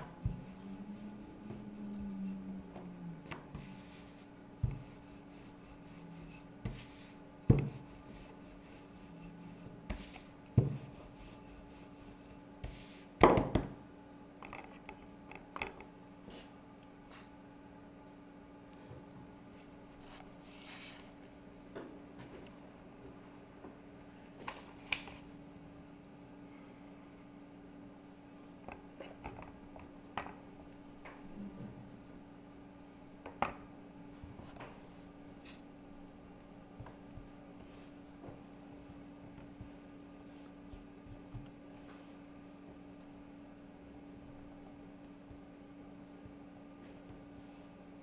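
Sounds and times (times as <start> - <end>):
low hum: 0.0 - 12.9, 16.7 - 48.0
rolling pin on wooden board: 0.0 - 13.8, 36.7 - 41.7.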